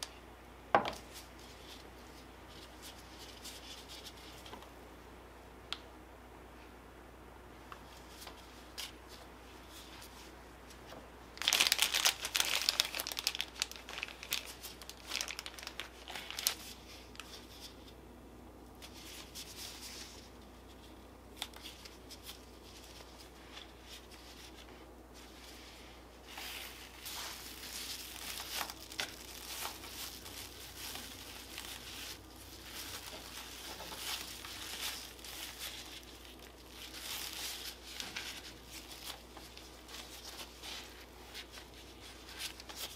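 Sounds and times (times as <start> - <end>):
thin plastic crinkling: 10.8 - 18.0, 18.8 - 42.9.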